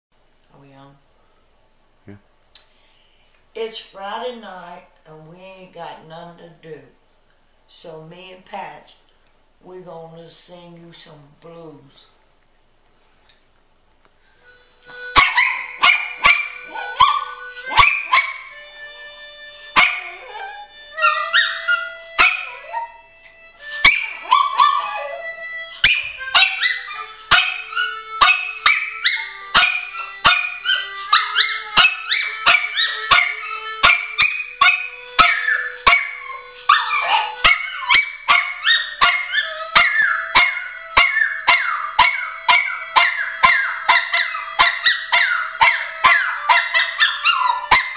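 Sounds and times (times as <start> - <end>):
blues harmonica: 14.2 - 47.9
dog howling: 15.1 - 18.7, 19.7 - 47.9.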